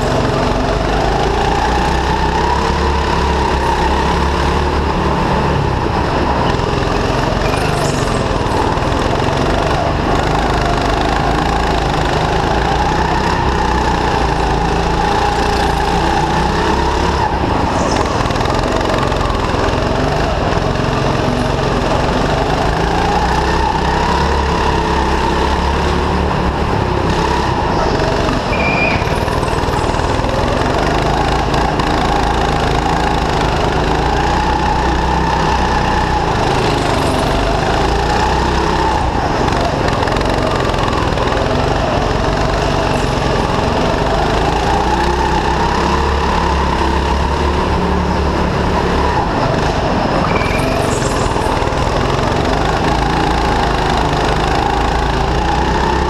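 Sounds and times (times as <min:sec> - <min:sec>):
go-kart engine running: 0:00.0 - 0:56.0
brief high squeak: 0:07.4 - 0:08.4, 0:28.5 - 0:29.4, 0:50.3 - 0:51.4.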